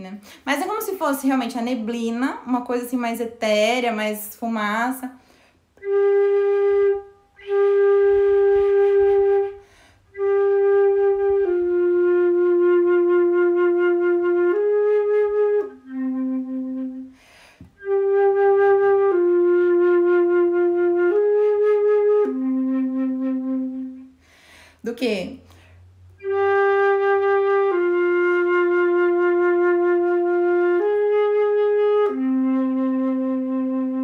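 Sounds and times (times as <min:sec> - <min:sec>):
flute playing long notes: 0:05.8 - 0:24.2, 0:26.2 - 0:34.0.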